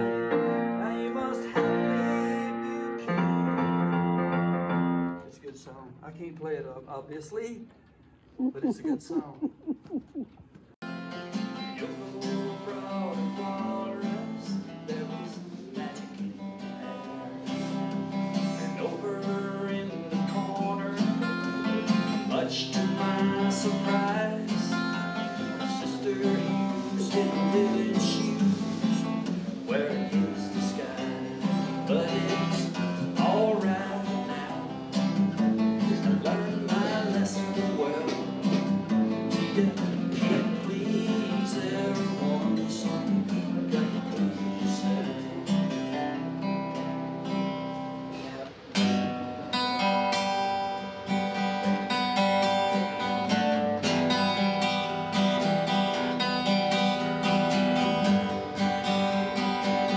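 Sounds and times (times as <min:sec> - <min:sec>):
man singing: 0:00.0 - 0:04.1, 0:08.4 - 0:09.8, 0:11.5 - 0:46.8
acoustic guitar strumming: 0:00.0 - 0:05.4, 0:10.8 - 0:59.9.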